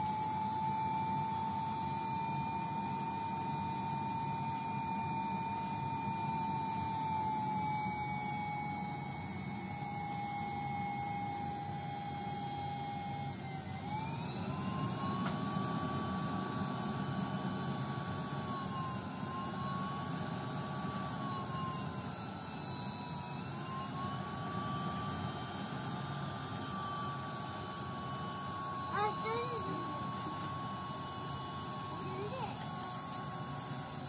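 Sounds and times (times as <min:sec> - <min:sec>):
forge blower air rush and whine: 0:00.0 - 0:34.0.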